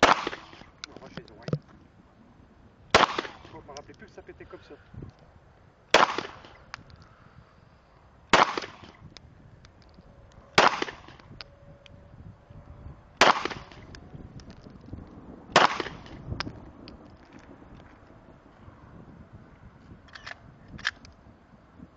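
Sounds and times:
pistol shots with echo: 0.0 - 0.6, 2.9 - 3.6, 5.9 - 6.6, 8.3 - 9.0, 10.6 - 11.2, 13.2 - 13.8, 15.5 - 16.2.

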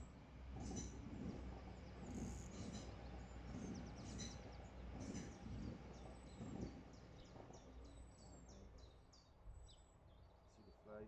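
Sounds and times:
small birds singing: 1.7 - 11.0
wind rumbling on microphone: 4.9 - 7.6.

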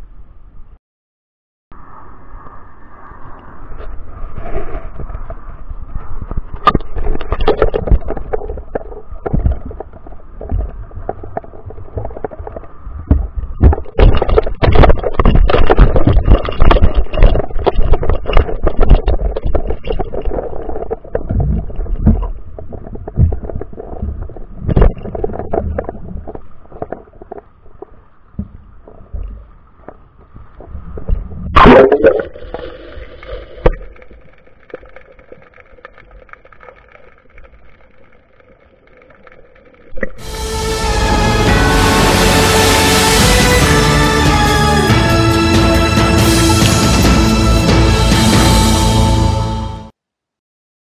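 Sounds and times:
muffled underwater rumble: 1.8 - 42.2.

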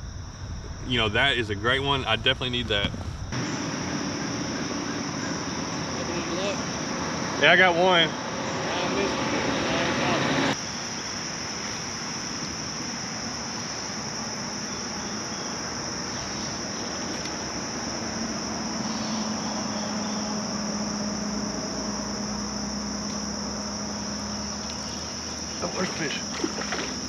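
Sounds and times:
faint low hum: 0.0 - 3.6
insects chorus: 0.0 - 27.0.

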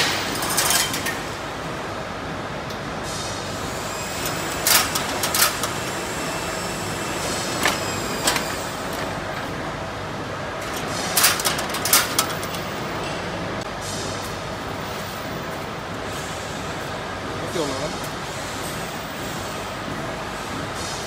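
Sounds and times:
fence weaving machine running: 3.8 - 13.0.

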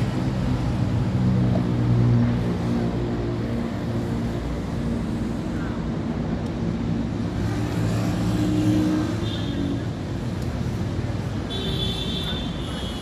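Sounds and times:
highway traffic noise: 0.0 - 13.0.

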